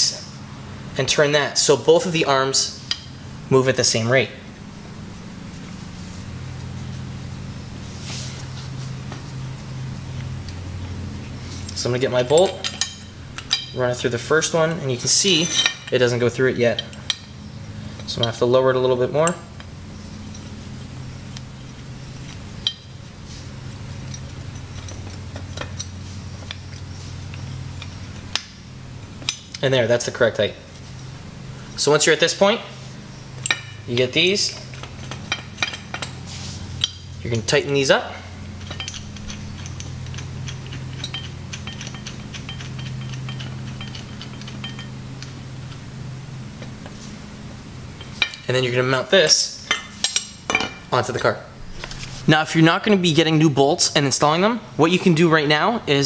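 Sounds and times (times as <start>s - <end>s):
steady low hum: 0.0s - 56.0s
metal clicks and clinks: 38.6s - 45.3s.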